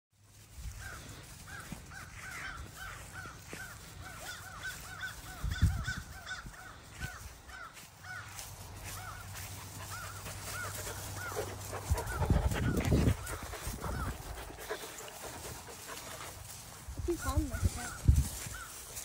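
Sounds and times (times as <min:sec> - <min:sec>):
rapid animal calls: 0:00.8 - 0:08.3, 0:08.9 - 0:19.0.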